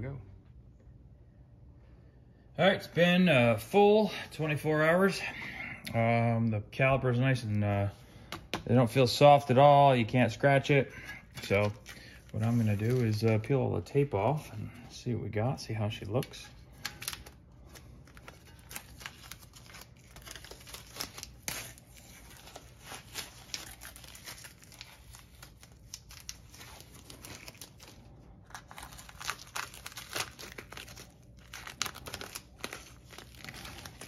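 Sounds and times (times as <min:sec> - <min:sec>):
tape peeling and crinkling: 0:11.2 - 0:13.6, 0:16.0 - 0:34.0.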